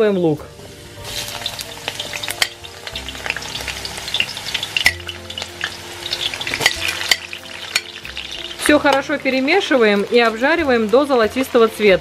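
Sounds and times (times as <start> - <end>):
onion sizzling in hot oil: 0.0 - 12.0
metal spoon clicking on pan: 2.2 - 3.0, 4.8 - 5.2, 6.5 - 8.0.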